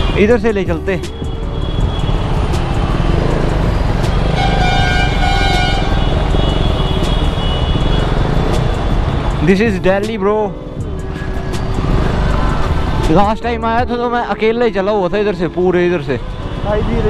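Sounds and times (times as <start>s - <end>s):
city traffic rumbling: 0.0s - 17.0s
motorcycle engine: 1.1s - 9.5s
vehicle horn: 4.1s - 8.2s.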